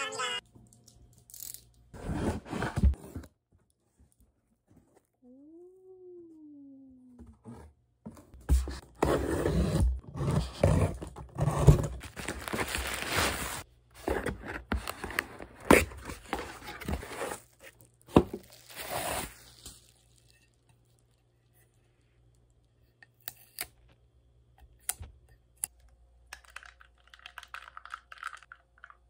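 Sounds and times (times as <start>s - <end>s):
bubble wrap crinkling and rustling: 12.0s - 13.7s, 16.9s - 21.2s
bubble wrap crackles: 12.1s - 13.6s, 18.4s - 21.1s.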